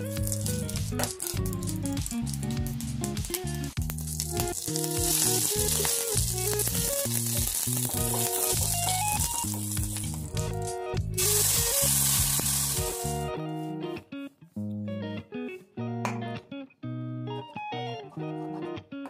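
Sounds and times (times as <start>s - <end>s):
leaves sizzling in hot oil: 0.0s - 13.3s
background music: 0.0s - 19.0s.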